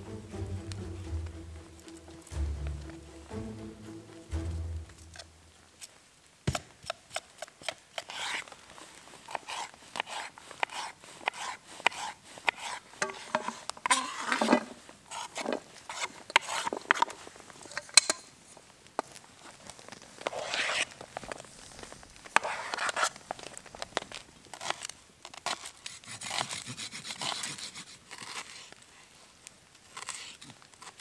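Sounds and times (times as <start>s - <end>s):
knife scraping board: 7.1s - 8.4s, 9.3s - 17.1s, 20.3s - 20.9s, 22.4s - 23.1s, 25.5s - 28.6s
pieces scraped into metal pot: 9.3s - 17.2s.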